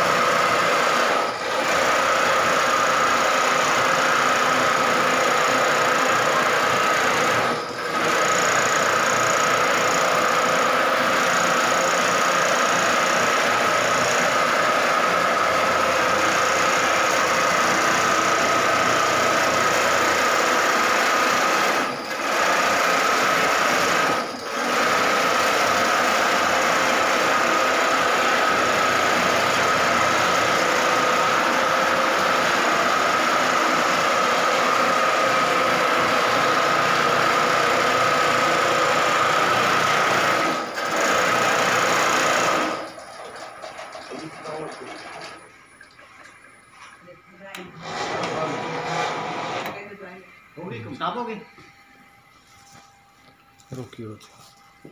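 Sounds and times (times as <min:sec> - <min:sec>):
quilting machine running: 0:00.0 - 0:51.4
steady high whine: 0:44.2 - 0:54.9.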